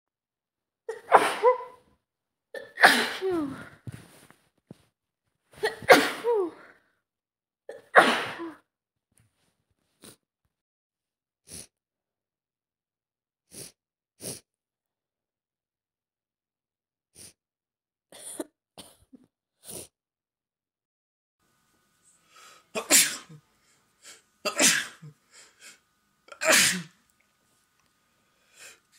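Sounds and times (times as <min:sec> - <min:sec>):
person sneezing: 0:00.9 - 0:01.8, 0:02.6 - 0:04.2, 0:05.6 - 0:06.7, 0:07.7 - 0:08.6, 0:22.3 - 0:27.0
sniffles through congested nose: 0:09.9 - 0:10.2, 0:11.4 - 0:11.8, 0:13.5 - 0:14.5, 0:17.1 - 0:17.4, 0:19.6 - 0:20.0.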